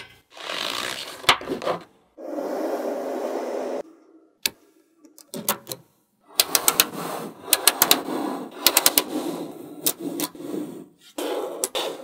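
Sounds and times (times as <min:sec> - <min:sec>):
magnet balls clicking: 0:04.4 - 0:10.4.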